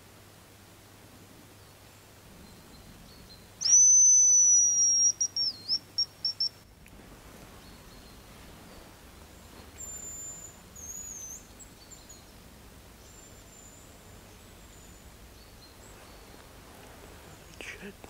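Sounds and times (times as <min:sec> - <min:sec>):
bird whistling in reply: 0:03.6 - 0:06.5
decoy whistle: 0:03.6 - 0:06.6.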